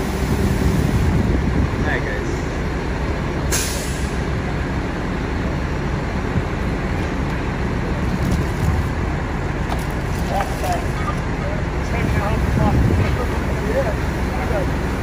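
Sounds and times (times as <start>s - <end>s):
fire engine diesel rumble: 0.0s - 15.0s
sharp hiss of air: 3.5s - 4.2s.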